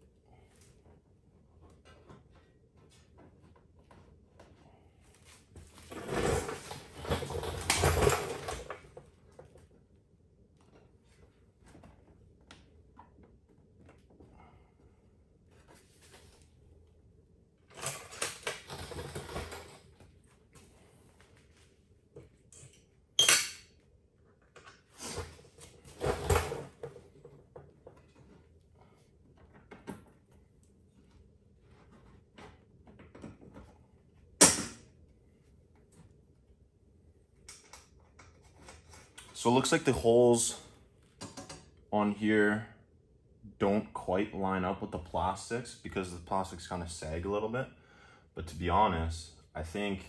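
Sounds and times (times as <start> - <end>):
clattering and scraping: 5.6 - 9.0.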